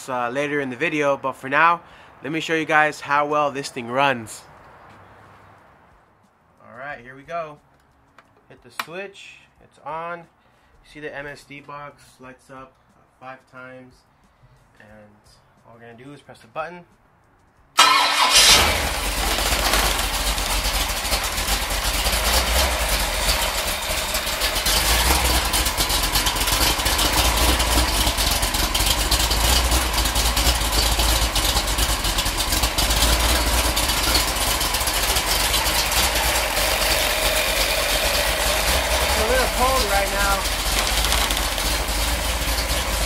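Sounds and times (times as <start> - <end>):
engine rumbling: 17.8 - 43.0.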